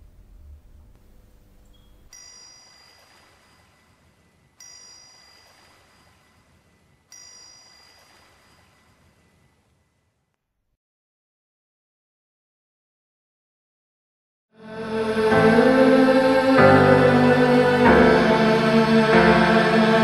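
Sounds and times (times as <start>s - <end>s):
chime ringing: 2.1s - 3.8s, 4.6s - 6.4s, 7.1s - 8.8s.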